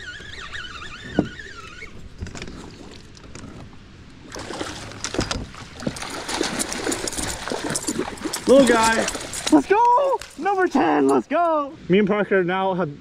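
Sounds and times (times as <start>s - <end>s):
water splashing: 4.2s - 11.0s.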